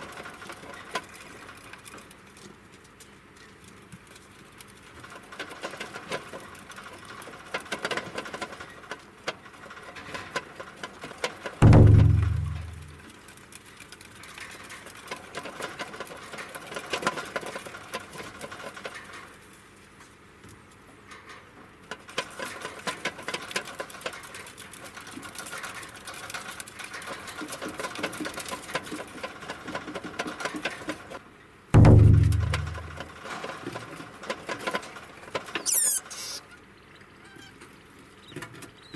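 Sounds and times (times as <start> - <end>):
plastic exercise wheel rattling: 4.6 - 19.3, 22.0 - 31.2, 31.8 - 36.4.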